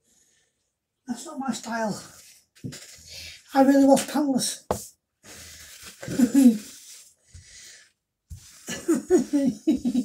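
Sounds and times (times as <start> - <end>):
paper towel rustling: 5.3 - 7.2.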